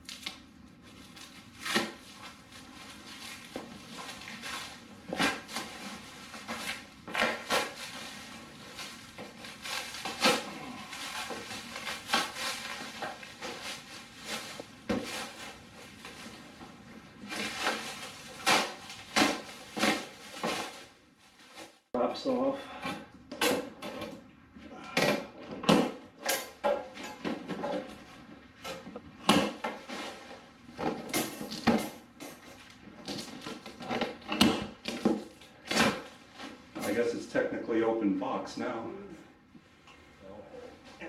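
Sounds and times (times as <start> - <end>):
plastic wrap ripping: 0.0 - 16.3, 17.3 - 20.9
plastic wrap crinkling: 0.0 - 21.8
box cutter cutting plastic wrap: 1.1 - 2.3, 3.0 - 15.5, 17.3 - 20.8.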